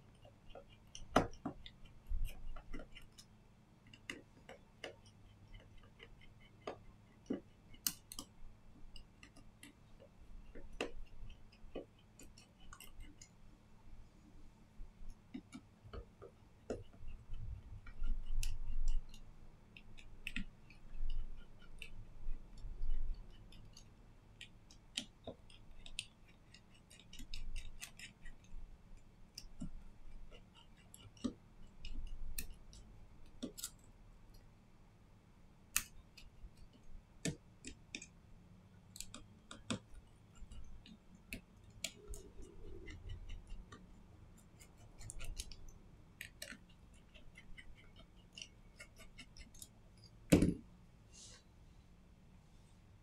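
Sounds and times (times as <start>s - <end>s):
small tools clicking and tapping: 22.6s - 34.4s, 38.9s - 43.9s, 44.6s - 50.6s.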